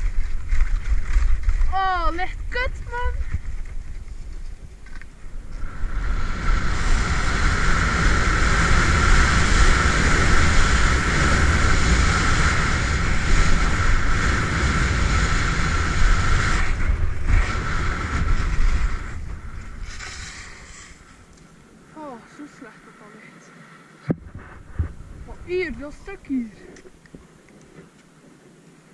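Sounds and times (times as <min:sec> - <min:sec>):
wind rushing over microphone: 0:00.0 - 0:23.4, 0:24.0 - 0:27.3
skis hissing and scraping on snow: 0:05.4 - 0:21.3.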